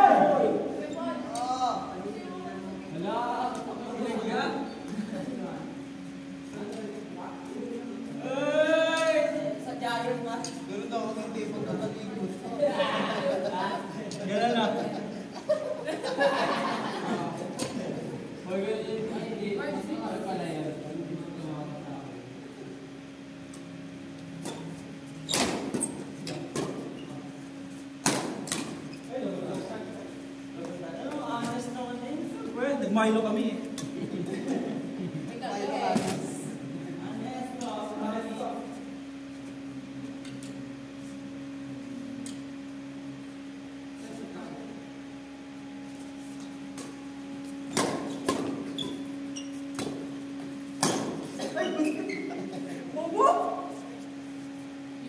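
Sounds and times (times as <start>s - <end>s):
electrical hum: 0.0s - 55.0s
rackets hitting shuttlecock: 28.0s - 28.8s, 47.7s - 48.7s, 50.8s - 51.4s
shoe squeaks: 48.0s - 49.8s, 51.6s - 52.4s.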